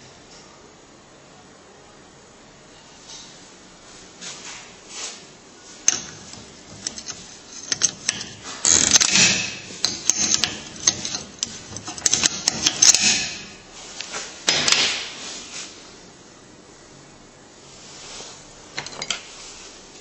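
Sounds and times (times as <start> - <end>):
strut creaking and squeaking: 6.9 - 11.4.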